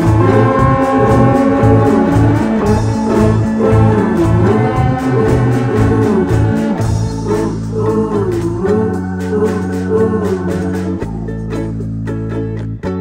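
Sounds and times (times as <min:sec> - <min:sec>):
organ held notes: 0:00.0 - 0:08.1
steady drum beat: 0:00.0 - 0:11.2
guitar held notes: 0:00.0 - 0:13.0.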